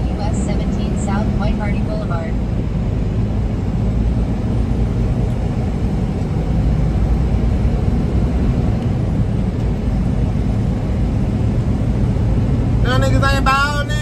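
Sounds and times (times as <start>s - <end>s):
road noise inside cab: 0.0s - 14.0s
truck engine rumble: 0.0s - 14.0s.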